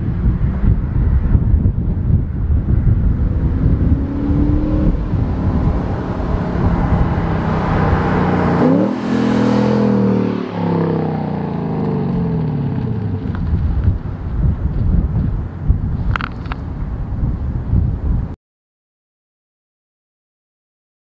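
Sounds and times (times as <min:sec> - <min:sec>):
car engine accelerating past: 0:03.1 - 0:13.0.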